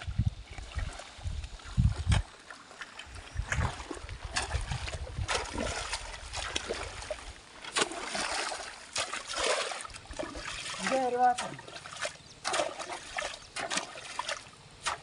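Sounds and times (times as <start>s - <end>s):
hoes chopping into wet mud: 3.5s - 15.0s.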